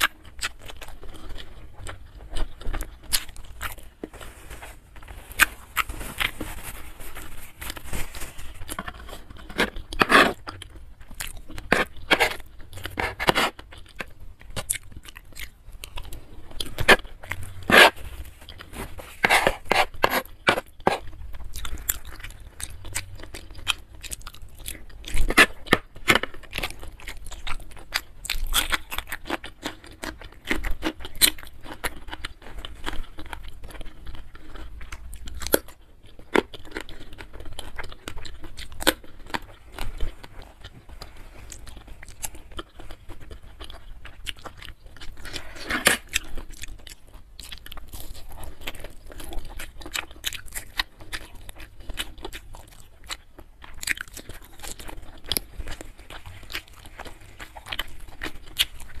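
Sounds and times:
chewing and crunching food: 0.0s - 59.0s.

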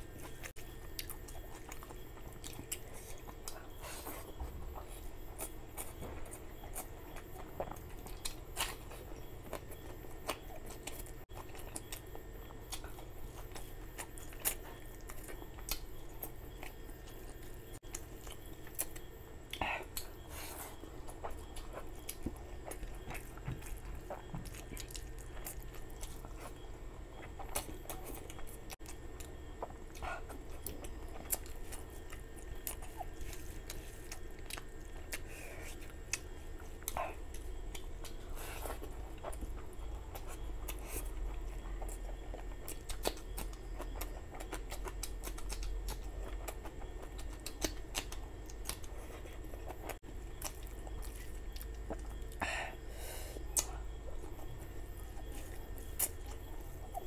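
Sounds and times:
close chewing: 0.0s - 57.0s
soft mouth clicks: 53.5s - 53.8s.

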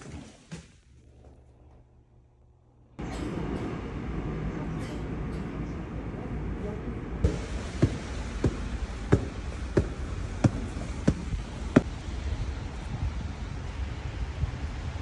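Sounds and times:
thuds: 7.3s - 11.9s
steady background hiss: 7.3s - 14.4s.

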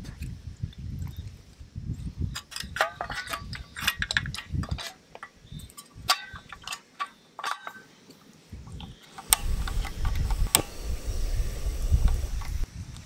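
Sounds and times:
low rumble: 9.3s - 12.7s.

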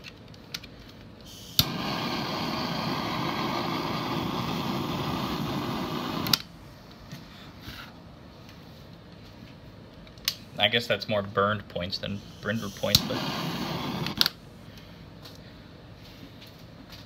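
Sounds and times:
blowtorch flame hissing: 1.3s - 6.5s, 12.1s - 14.4s
blowtorch igniter click: 1.3s - 6.5s, 12.7s - 14.4s.

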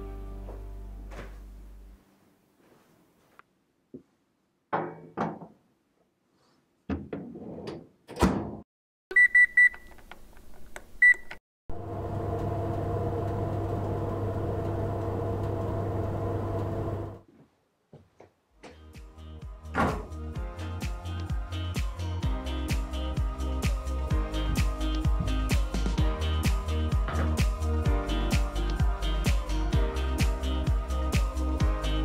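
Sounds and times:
oven control panel beeps: 9.1s - 9.9s, 11.0s - 11.4s
oven humming: 11.7s - 17.2s.

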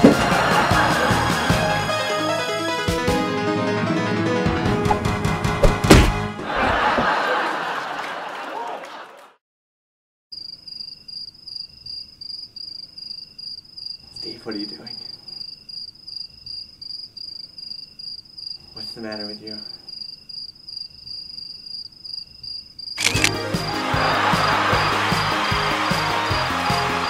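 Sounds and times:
loud music: 0.0s - 6.3s, 23.2s - 27.0s
crickets chirping: 10.4s - 23.2s.

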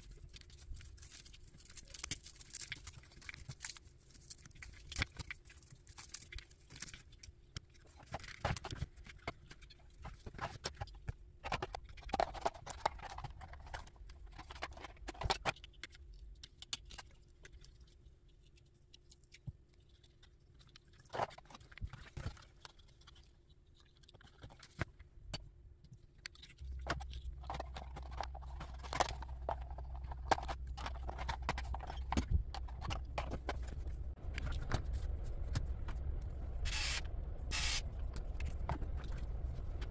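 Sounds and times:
plastic parts clicking and tapping: 0.0s - 17.8s, 24.0s - 34.8s
low steady hum: 0.0s - 39.9s.

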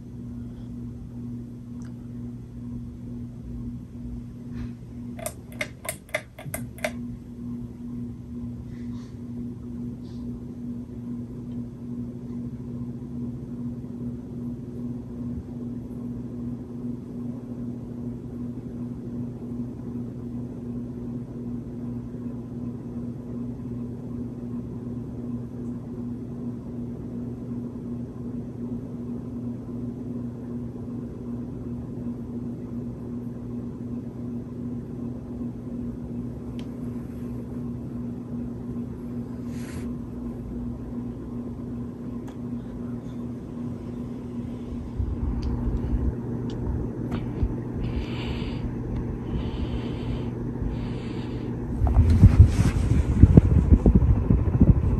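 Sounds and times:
ceiling fan motor hum: 0.0s - 54.9s
low rumble: 43.5s - 54.9s
rush of air: 47.8s - 54.9s.

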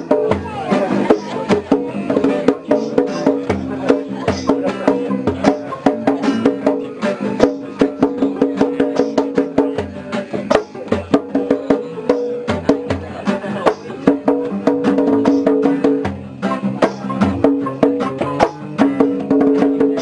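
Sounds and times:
acoustic guitars strumming: 0.0s - 20.0s.

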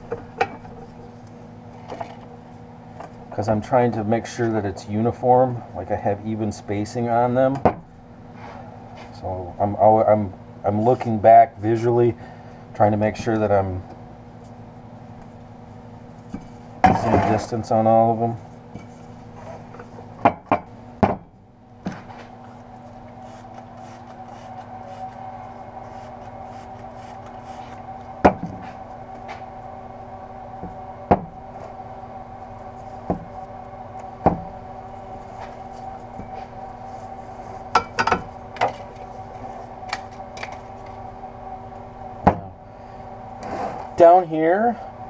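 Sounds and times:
steady background hum: 0.0s - 45.0s
soft rubbing of wrap on pipe: 18.4s - 20.1s, 22.2s - 28.0s, 34.9s - 37.7s, 38.8s - 39.8s.

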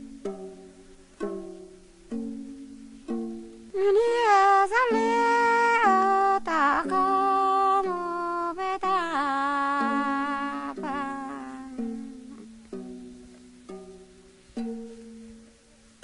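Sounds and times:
plucked bamboo zither: 0.0s - 16.0s
person singing: 3.7s - 12.6s.

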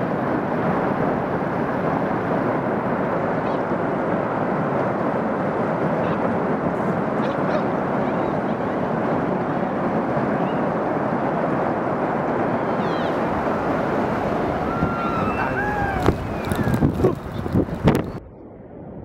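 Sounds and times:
ice avalanche rumbling: 0.0s - 18.2s.

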